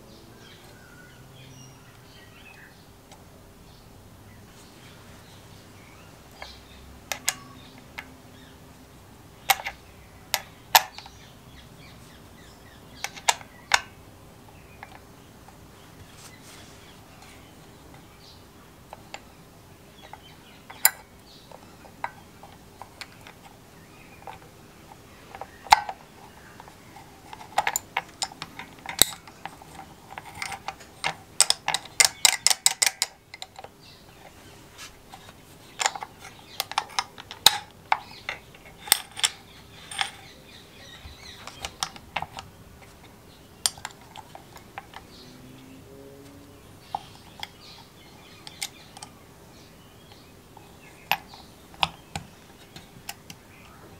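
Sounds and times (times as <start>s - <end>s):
small parts clicking and tapping: 6.3s - 8.2s, 9.4s - 11.2s, 13.0s - 15.7s, 18.8s - 19.4s, 20.0s - 34.4s, 35.0s - 45.2s, 46.8s - 49.2s, 50.0s - 53.9s.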